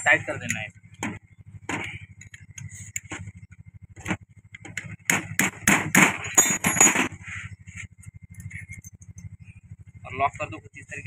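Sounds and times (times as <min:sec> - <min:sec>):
spanner clinking on metal: 0:06.2 - 0:07.0.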